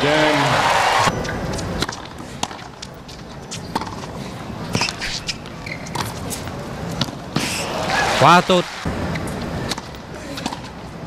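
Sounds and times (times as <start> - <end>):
stadium crowd cheering: 0.0 - 1.1, 7.4 - 8.9
crowd background: 0.0 - 11.0.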